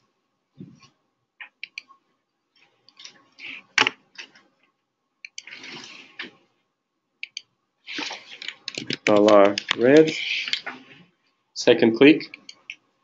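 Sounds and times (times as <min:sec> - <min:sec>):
computer mouse clicks: 0:01.4 - 0:01.9, 0:05.2 - 0:05.8, 0:07.2 - 0:10.8, 0:12.3 - 0:12.8
rustling on desk: 0:05.4 - 0:06.4, 0:07.9 - 0:11.2.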